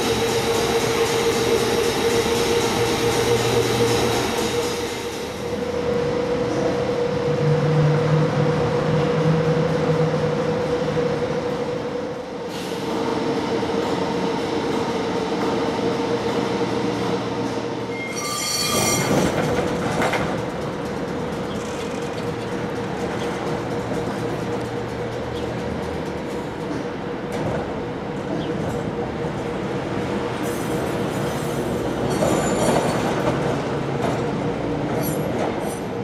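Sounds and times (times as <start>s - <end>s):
tram humming: 0.0s - 36.0s
high-pitched ringing tone: 17.9s - 19.3s.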